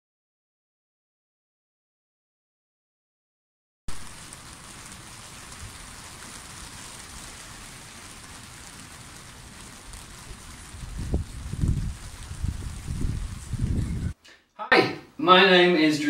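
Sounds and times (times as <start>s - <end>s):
rain falling: 3.9s - 14.2s.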